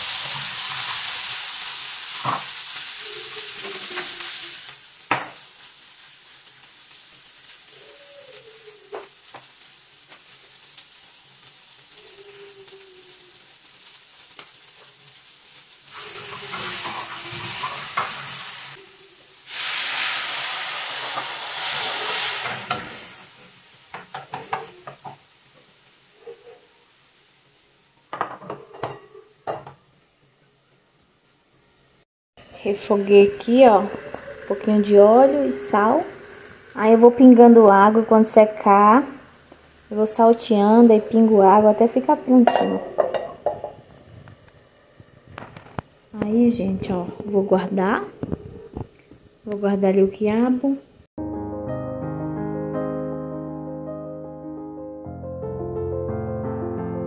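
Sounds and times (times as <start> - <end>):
okra sizzling in oil: 0.0 - 48.4
wooden spoon knocking on pan: 42.4 - 43.8.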